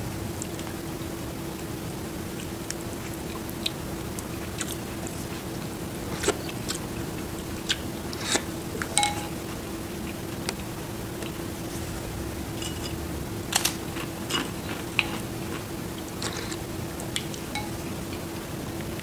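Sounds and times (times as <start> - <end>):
steady low hum: 0.0 - 19.0
spoon clinking against bowl: 9.0 - 9.4, 17.6 - 17.9.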